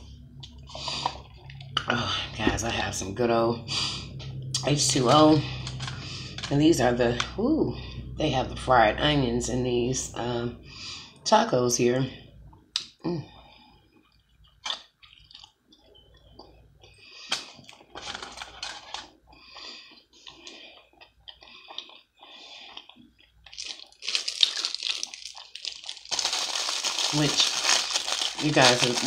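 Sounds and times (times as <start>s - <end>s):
close-up chewing: 18.9s - 29.0s
small crunches: 22.8s - 29.0s
crinkling rustle: 23.5s - 29.0s.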